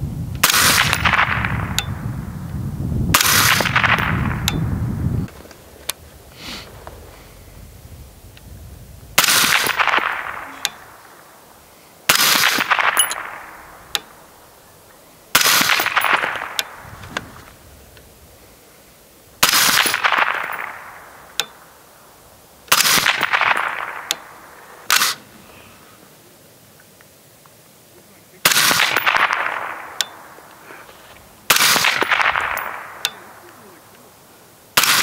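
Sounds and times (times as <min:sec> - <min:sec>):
suppressed rifle shots: 0:00.4 - 0:01.9, 0:03.1 - 0:04.6, 0:09.2 - 0:11.1, 0:12.1 - 0:14.4, 0:15.3 - 0:18.0, 0:19.4 - 0:21.8, 0:22.7 - 0:25.3, 0:28.4 - 0:30.6, 0:31.5 - 0:33.6, 0:34.8 - 0:35.0.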